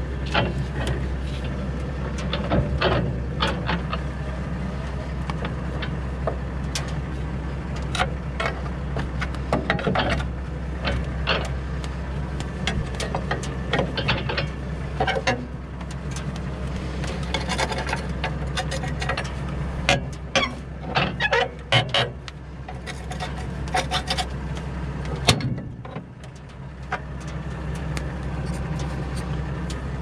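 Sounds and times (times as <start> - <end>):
low engine hum: 0.0 - 30.0
metal lever clicking and scraping: 17.0 - 24.4.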